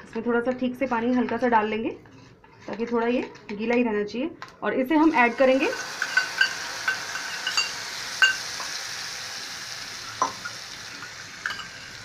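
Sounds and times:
oil sizzling in a pan: 0:05.0 - 0:12.0.

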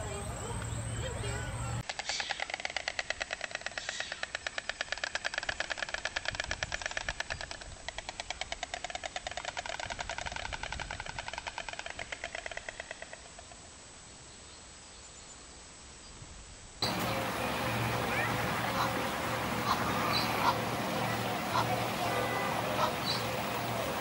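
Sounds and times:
stork clattering its bill: 0:01.8 - 0:13.5.

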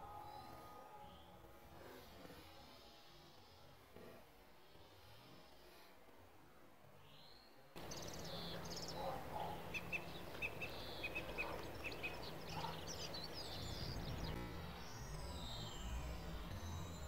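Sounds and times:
songbirds twittering: 0:06.9 - 0:17.0
low hum: 0:07.8 - 0:17.0.

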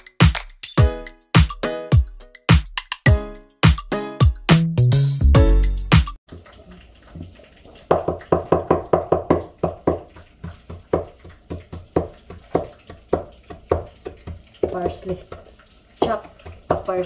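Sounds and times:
knife chopping on wooden board: 0:07.9 - 0:17.0.

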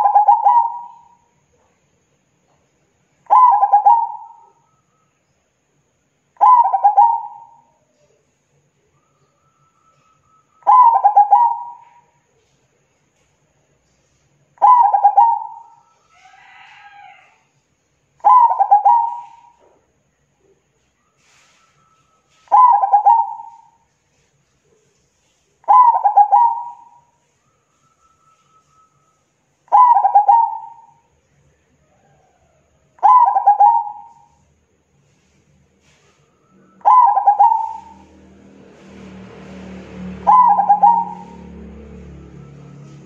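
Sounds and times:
dove cooing: 0:00.0 - 0:01.2, 0:03.3 - 0:04.6, 0:06.4 - 0:07.7, 0:10.6 - 0:12.1, 0:14.6 - 0:17.0, 0:18.2 - 0:19.6, 0:22.5 - 0:23.8, 0:25.7 - 0:27.0, 0:29.7 - 0:31.0, 0:33.0 - 0:34.4, 0:36.8 - 0:38.1, 0:40.1 - 0:41.6.

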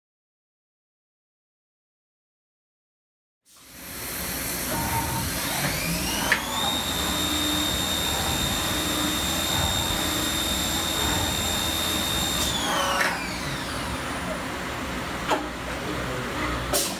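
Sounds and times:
mill spindle whine: 0:03.6 - 0:16.6.

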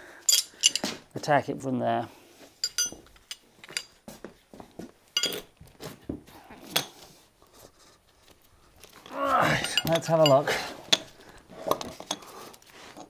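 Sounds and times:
metal tools clinking: 0:00.2 - 0:01.0, 0:02.6 - 0:04.0, 0:05.2 - 0:05.5, 0:08.8 - 0:11.2.

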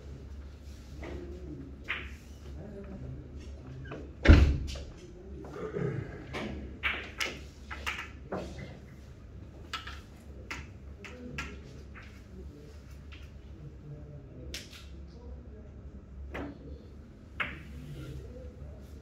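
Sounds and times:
billiard balls knocking together: 0:06.8 - 0:08.6.

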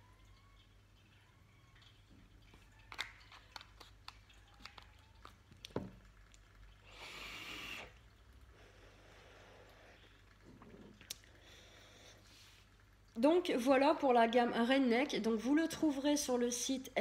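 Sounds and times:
breathy vapour hiss: 0:06.8 - 0:10.2.

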